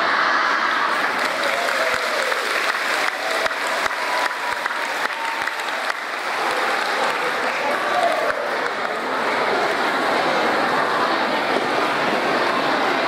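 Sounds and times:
audience applauding: 0:00.7 - 0:10.6.

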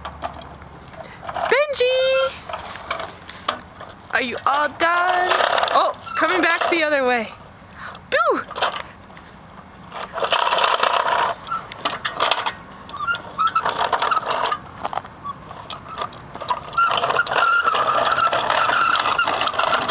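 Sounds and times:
toy truck wheels rolling on concrete: 0:00.0 - 0:19.9.

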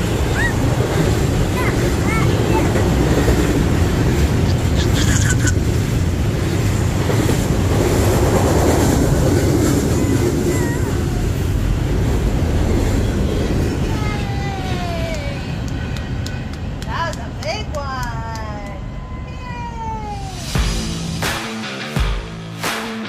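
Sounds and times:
train wheels clickety-clack: 0:00.0 - 0:11.0, 0:14.9 - 0:18.8
freight train rumbling past: 0:00.0 - 0:22.6.

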